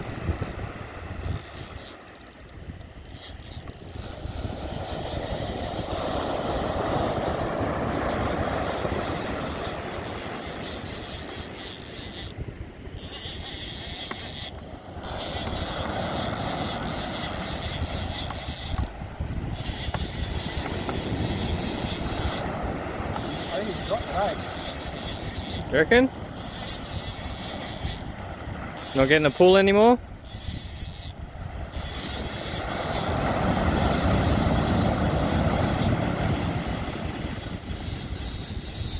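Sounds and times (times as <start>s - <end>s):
wind buffeting microphone: 0.0s - 38.9s
surf breaking on beach: 4.0s - 10.6s, 32.6s - 37.4s.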